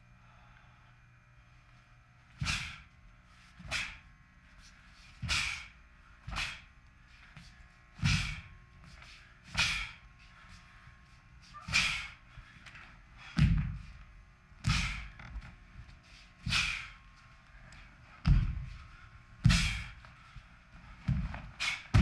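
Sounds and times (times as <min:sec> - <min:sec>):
bare feet thudding on floor: 0:08.0 - 0:08.5, 0:13.3 - 0:14.0, 0:18.2 - 0:18.8, 0:19.4 - 0:19.9, 0:21.0 - 0:22.0.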